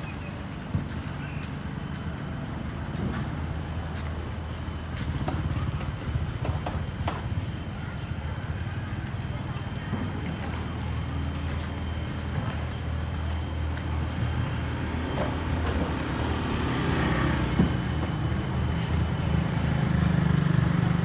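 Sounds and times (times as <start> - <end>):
street traffic rumble: 0.0 - 21.0
motor scooter passing: 14.1 - 21.0.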